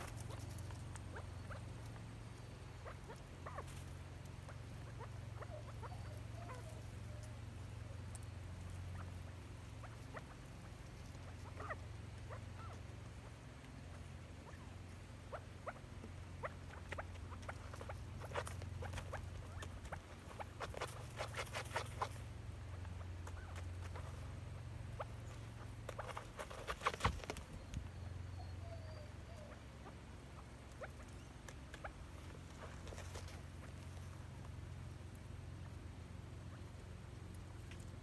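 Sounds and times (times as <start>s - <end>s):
bird scratching in dirt: 0.0s - 2.0s, 16.4s - 27.6s, 31.5s - 34.1s
low steady hum: 0.0s - 38.0s.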